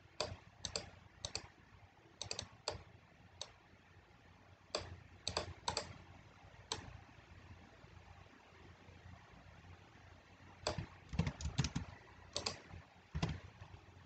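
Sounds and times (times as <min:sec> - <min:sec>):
keyboard and mouse clicking: 0:00.2 - 0:01.5, 0:02.2 - 0:03.6, 0:04.7 - 0:06.0, 0:06.7 - 0:07.0, 0:10.6 - 0:13.6.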